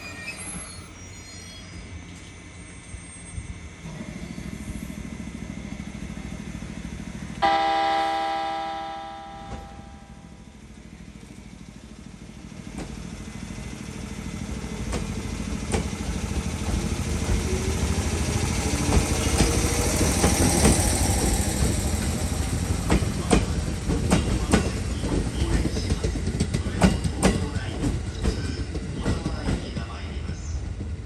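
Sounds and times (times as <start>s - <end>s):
train rumble: 0.0s - 31.0s
wheels clacking over rail joints: 12.4s - 30.0s.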